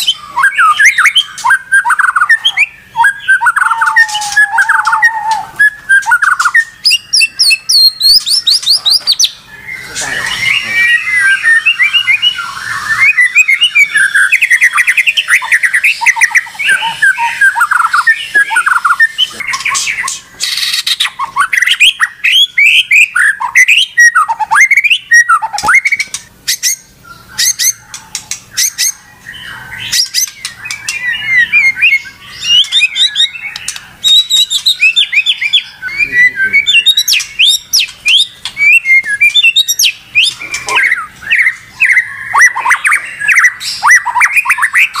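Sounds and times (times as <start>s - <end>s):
songbird singing loudly: 0.0s - 45.0s.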